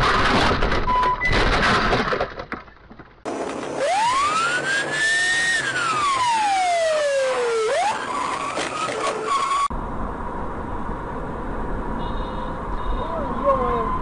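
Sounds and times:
road rumble with thin whine: 1.9s - 14.0s
car tyres squealing: 3.8s - 9.7s.

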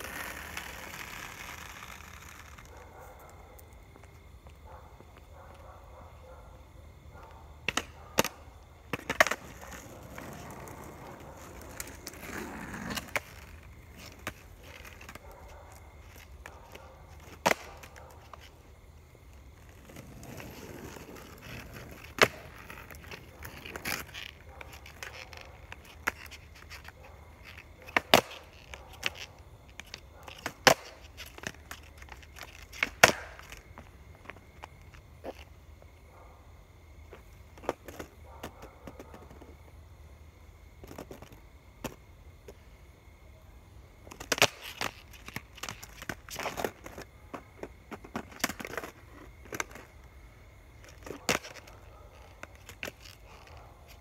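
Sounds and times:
skateboard wheels rolling: 0.0s - 5.6s, 6.6s - 36.0s, 36.7s - 43.2s, 43.9s - 54.0s
skateboard clacking: 7.6s - 18.4s, 19.8s - 26.4s, 27.9s - 29.3s, 30.3s - 33.6s.

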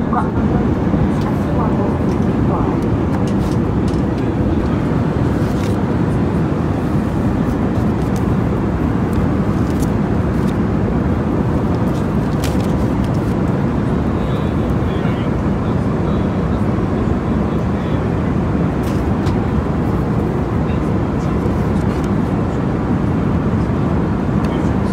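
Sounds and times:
airliner cabin noise: 0.0s - 24.9s
paper rustling: 5.4s - 5.8s, 11.8s - 13.4s.

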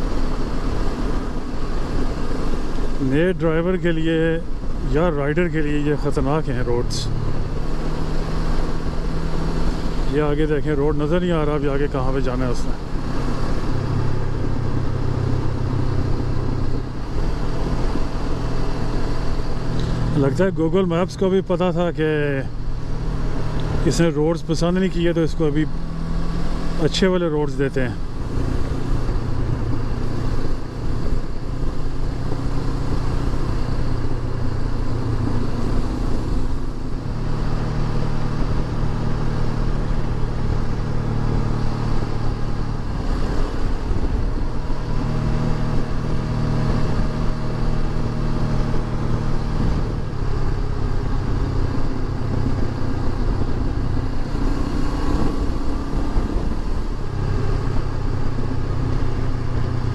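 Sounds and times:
motorcycle engine running: 0.0s - 59.9s
wind noise: 27.9s - 59.9s.

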